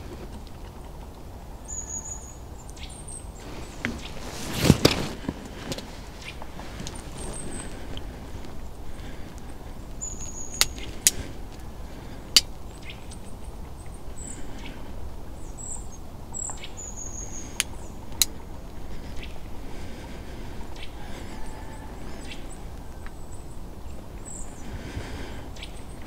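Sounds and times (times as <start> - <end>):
low background rumble: 0.0 - 26.0
high thin bird chirps: 10.0 - 11.3
sharp clicks: 10.1 - 11.6.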